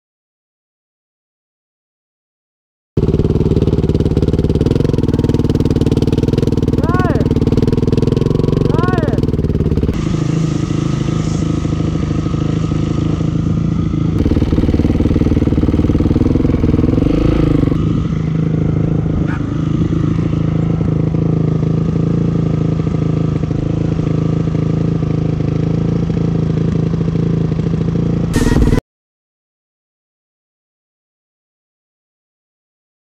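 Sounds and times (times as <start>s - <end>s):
dirt bike engine revving: 3.0s - 28.8s.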